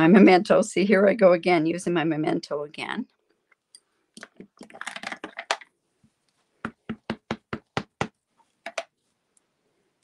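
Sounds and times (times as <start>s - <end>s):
clicking and handling: 3.7s - 5.7s
stamp block knocking on ink pad: 6.6s - 8.2s.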